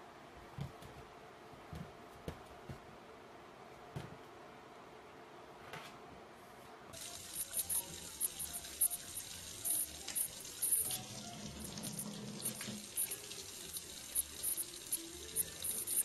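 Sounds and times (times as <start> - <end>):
faucet stream splashing into sink: 7.0 - 16.0.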